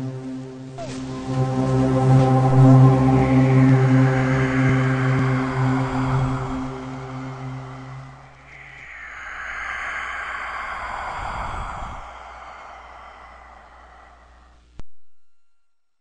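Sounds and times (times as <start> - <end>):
long breathy hiss: 0.6 - 14.8
low rumble: 0.8 - 14.8.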